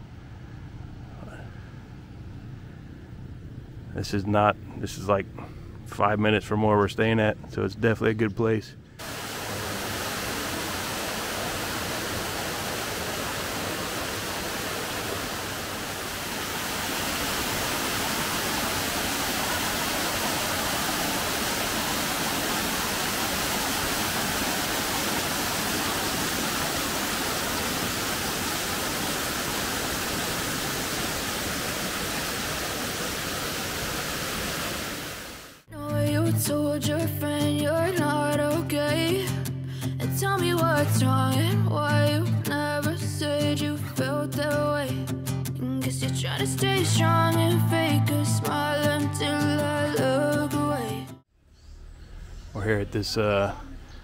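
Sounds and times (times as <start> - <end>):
flowing water rushing: 9.0 - 35.7.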